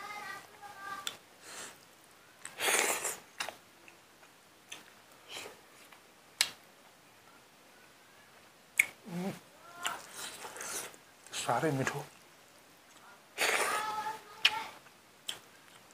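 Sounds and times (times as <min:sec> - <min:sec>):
wet chewing and lip-smacking: 0:02.4 - 0:05.0
man slurping food: 0:02.6 - 0:03.2
man murmuring: 0:09.1 - 0:09.4.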